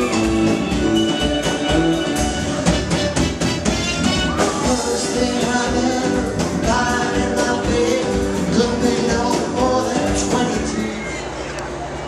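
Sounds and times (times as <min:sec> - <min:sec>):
steady drum beat: 0:00.0 - 0:10.9
live band playing: 0:00.0 - 0:11.4
person singing: 0:04.4 - 0:11.2.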